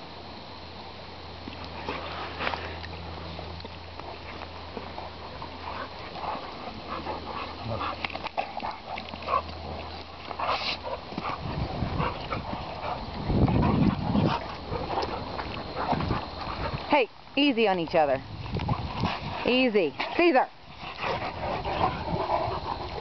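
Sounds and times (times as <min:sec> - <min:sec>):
dogs scuffling: 0:03.9 - 0:23.0
dogs growling and huffing: 0:04.0 - 0:16.9, 0:18.2 - 0:23.0.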